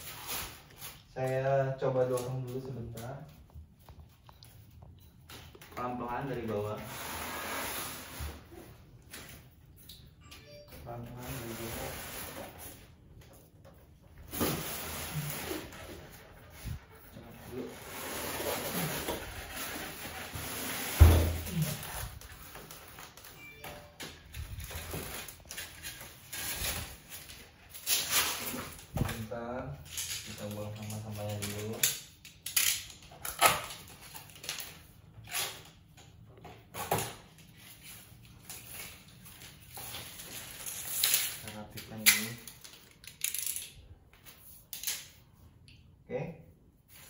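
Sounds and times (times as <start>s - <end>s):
tape and cardboard scraping: 6.8s - 8.7s
loud thump: 21.0s - 21.5s
packing strips scraping and rustling: 24.4s - 28.9s, 37.5s - 45.2s.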